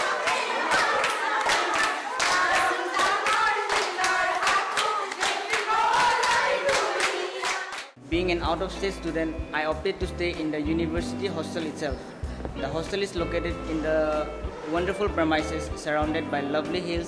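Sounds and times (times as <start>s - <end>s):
women singing together: 0.0s - 7.9s
hands clapping a beat: 0.0s - 8.0s.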